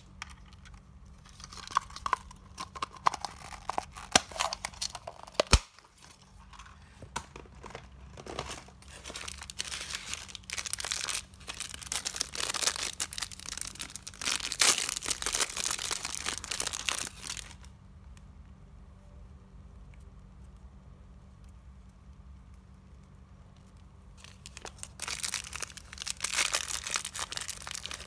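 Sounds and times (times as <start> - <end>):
plastic wrapper tearing: 0.0 - 6.7, 8.1 - 17.7, 24.2 - 28.0.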